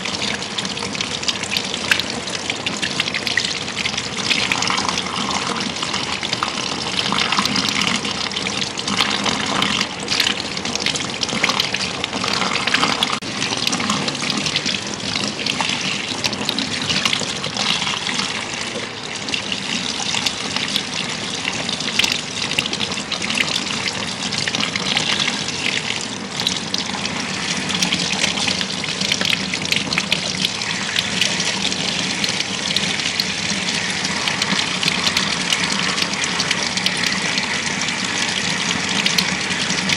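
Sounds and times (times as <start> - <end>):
shower head spraying water: 29.9 - 39.9.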